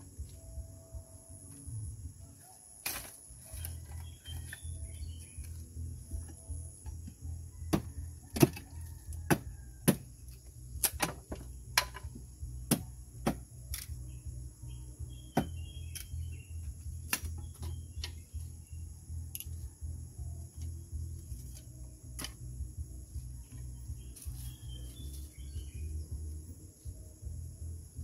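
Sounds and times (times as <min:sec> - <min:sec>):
insects buzzing: 0:00.0 - 0:28.0
machete chopping wood: 0:02.8 - 0:03.2, 0:07.7 - 0:08.6, 0:09.3 - 0:10.1, 0:10.8 - 0:12.1, 0:12.7 - 0:13.9, 0:15.4 - 0:16.1, 0:17.0 - 0:18.2, 0:22.2 - 0:22.4.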